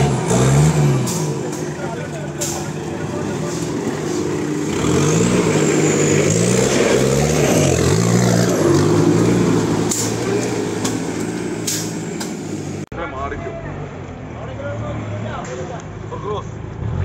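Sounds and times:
jeep engine revving: 0.0 - 12.9, 16.8 - 17.0.

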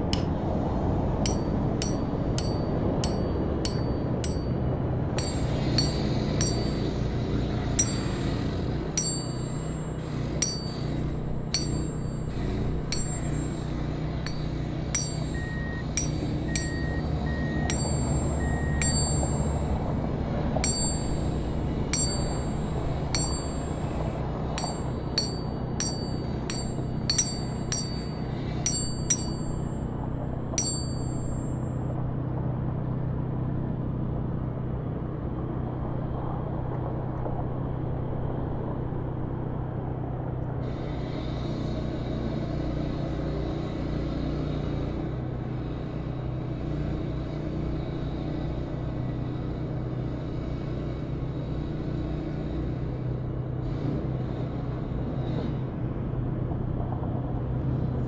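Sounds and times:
steady low rumble: 0.0 - 33.6
bell-like chimes ringing: 1.3 - 7.0, 7.8 - 29.9, 30.6 - 31.9
cars passing with tyre hiss: 32.1 - 58.0.

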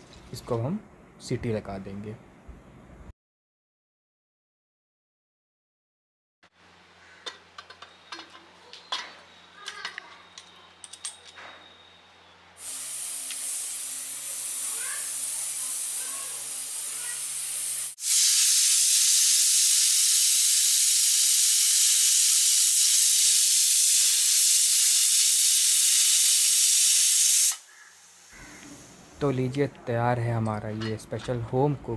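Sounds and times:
steam hissing: 12.6 - 29.1
pressure cooker whistle: 18.0 - 27.7.

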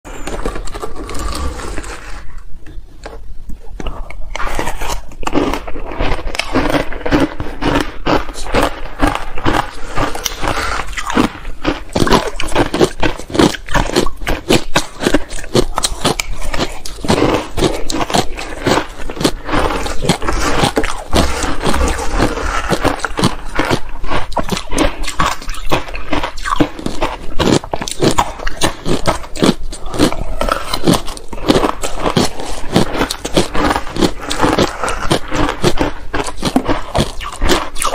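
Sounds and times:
ice crunching close up: 4.4 - 37.9.

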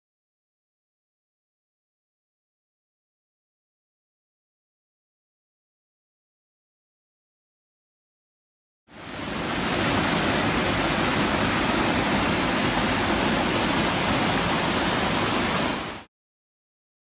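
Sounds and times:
river water rushing over boulders: 8.9 - 16.1.

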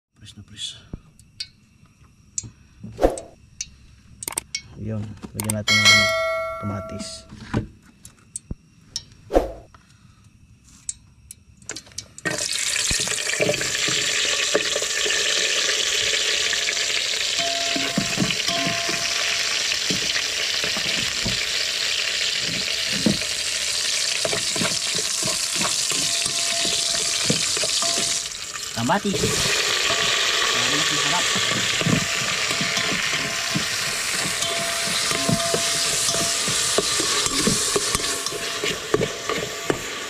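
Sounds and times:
shallots sizzling in hot oil: 12.2 - 40.0
metal spoon scraping pot: 24.1 - 28.3, 31.2 - 39.8.

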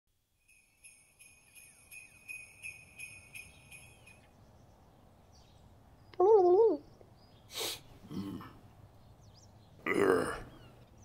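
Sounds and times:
jingle bells shaken: 0.4 - 4.4.

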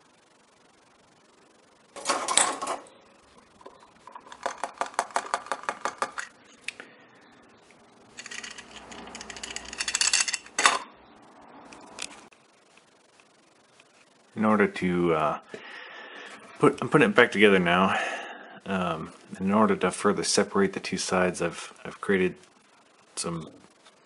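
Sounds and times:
metal tools clattering: 2.0 - 2.8, 8.2 - 10.9
scraping and rattling: 8.1 - 10.8
rapid ticks: 12.3 - 14.3.

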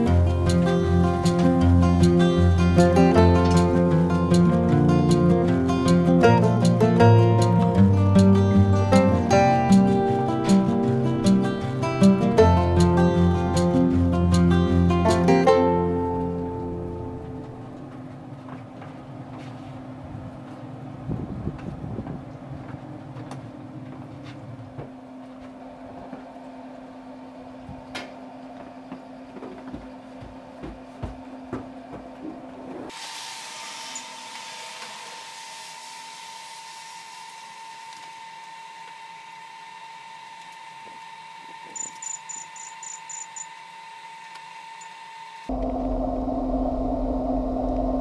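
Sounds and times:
smoker fan hum: 0.0 - 48.0
short high electronic beeps: 41.8 - 43.5.

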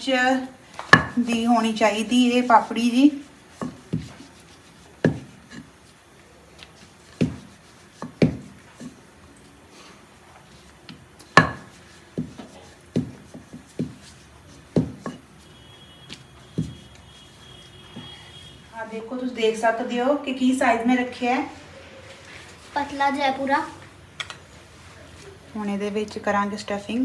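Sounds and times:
faint rubbing of dough: 0.1 - 27.0
rolling pin clacking on stone board: 11.3 - 14.0.

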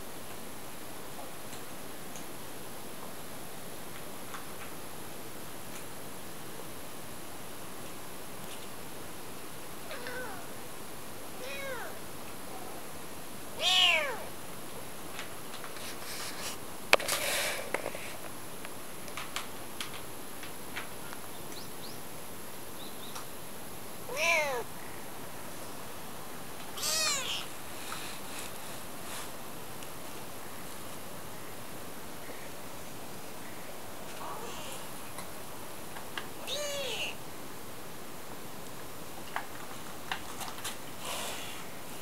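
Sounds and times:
kitten meowing: 9.9 - 10.5, 11.4 - 12.0, 13.6 - 14.3, 24.1 - 24.7, 26.8 - 27.5, 36.4 - 37.2
rustling: 15.1 - 18.3, 26.6 - 31.1.

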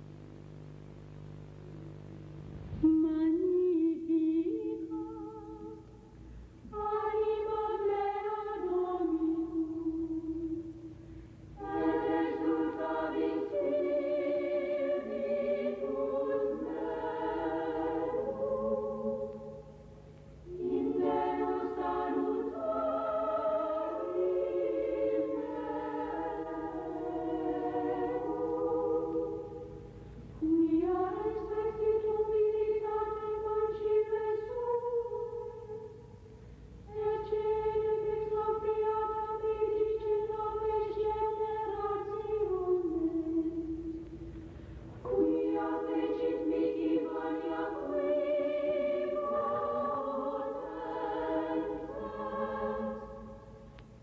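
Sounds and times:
low steady hum: 0.0 - 54.0
choir singing: 6.6 - 10.8, 11.6 - 36.0, 36.9 - 44.0, 45.0 - 53.8.

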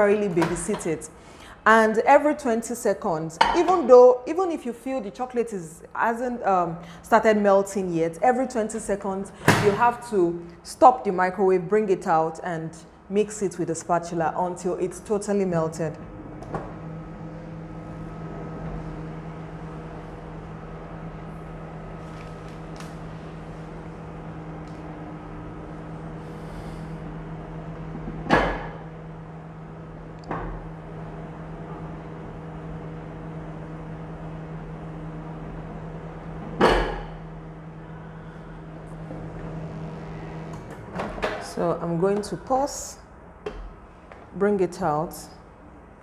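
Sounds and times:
microwave oven humming: 14.2 - 46.0.

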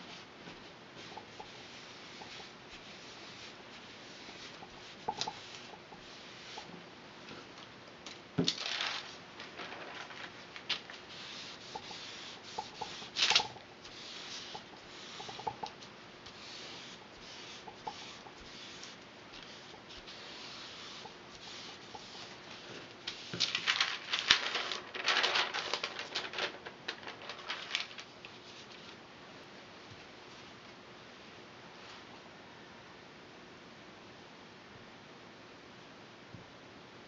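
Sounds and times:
paper rustling and crinkling: 8.4 - 13.6, 18.8 - 29.0.

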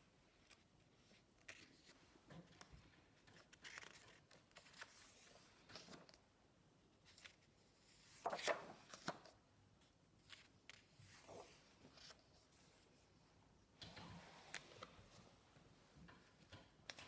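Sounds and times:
paper pages turning: 0.4 - 6.2, 7.0 - 9.4, 10.2 - 12.7.

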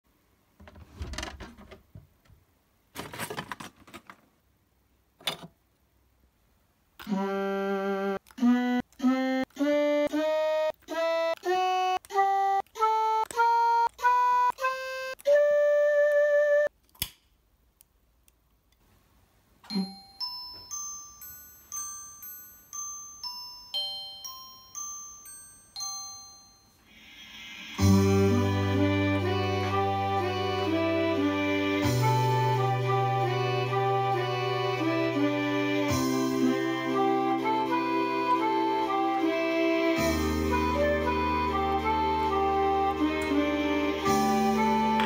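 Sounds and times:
glockenspiel-like notes: 19.6 - 27.0
electronic instrument held notes: 26.8 - 45.0.

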